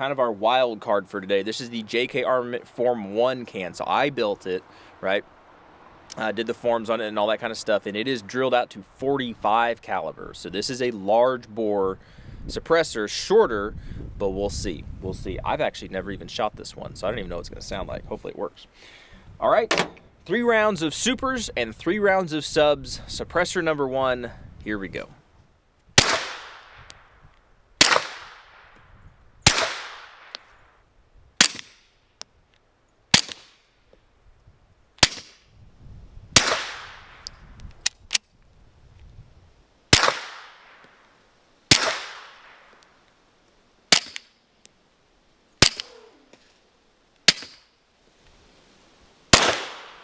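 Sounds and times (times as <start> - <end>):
suppressed pistol shots: 26.0 - 27.0, 27.8 - 28.8, 29.4 - 30.5, 31.4 - 31.8, 33.1 - 33.6, 35.0 - 35.4, 36.4 - 37.3, 39.9 - 40.9, 41.7 - 42.9, 43.9 - 44.3, 45.6 - 46.1, 47.3 - 47.6, 49.3 - 50.0.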